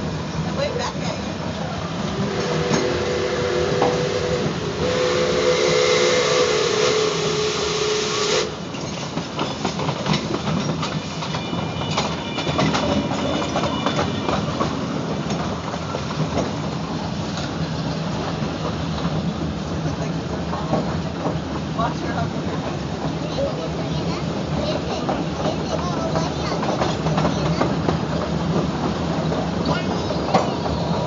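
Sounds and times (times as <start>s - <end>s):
train wheels clattering over rails: 0.0s - 7.1s, 8.4s - 31.0s
rush of steam: 0.0s - 11.2s
steam locomotive whistle: 2.2s - 8.6s.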